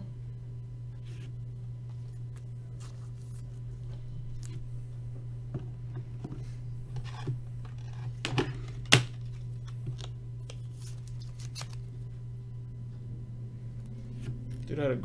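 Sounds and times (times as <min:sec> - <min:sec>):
steady low hum: 0:00.0 - 0:15.0
cards shuffled by hand: 0:07.0 - 0:11.9.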